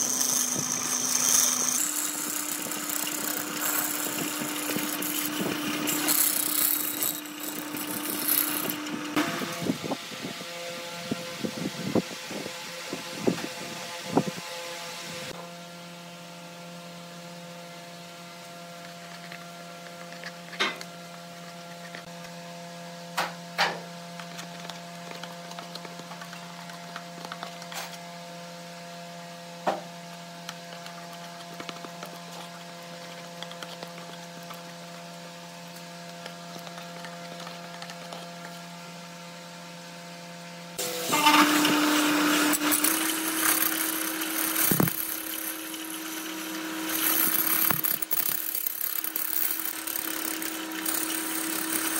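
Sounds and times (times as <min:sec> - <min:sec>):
chisel scraping spinning wood: 0:00.0 - 0:09.2, 0:41.0 - 0:51.9
lathe motor humming: 0:00.0 - 0:09.2, 0:40.8 - 0:51.9.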